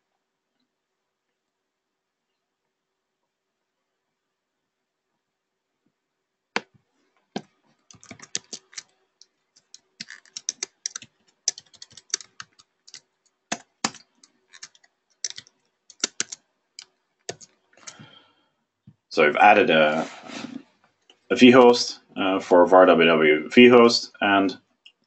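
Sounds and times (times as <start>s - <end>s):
keyboard typing: 7.4s - 8.9s, 9.6s - 18.1s.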